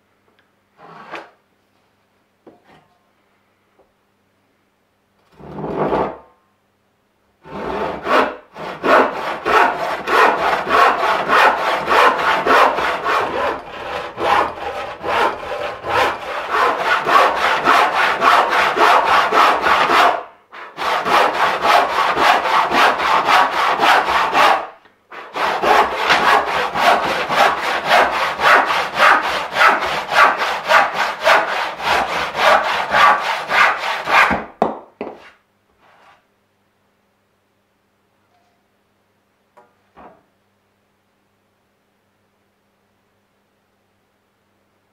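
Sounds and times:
hand saw cutting wood: 0:07.4 - 0:34.4.

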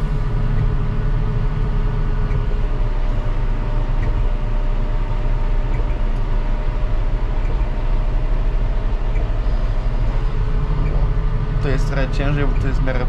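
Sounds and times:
tractor engine droning: 0:00.0 - 0:13.0.

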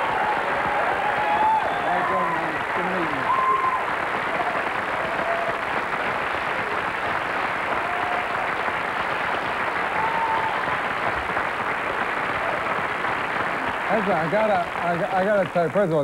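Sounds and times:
audience applauding: 0:00.0 - 0:16.0.

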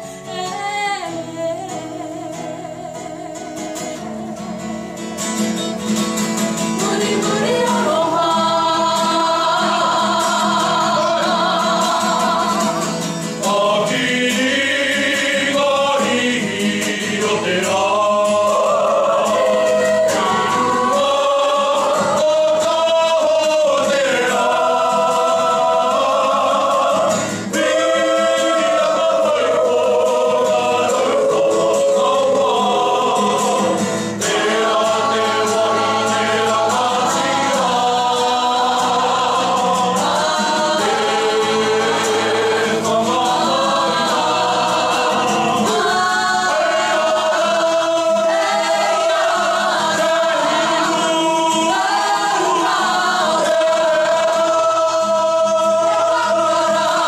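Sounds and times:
choir singing: 0:00.0 - 0:57.0.

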